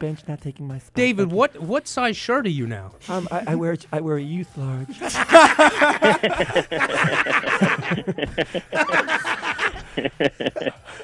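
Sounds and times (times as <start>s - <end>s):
people laughing: 4.9s - 11.0s.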